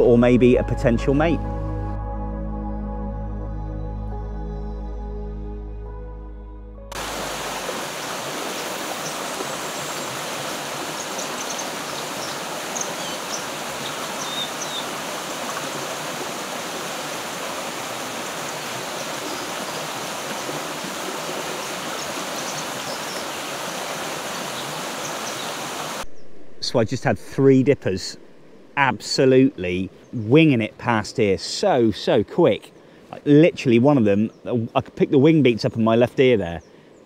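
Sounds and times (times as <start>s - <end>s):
river water flowing over rocks: 6.9s - 26.1s.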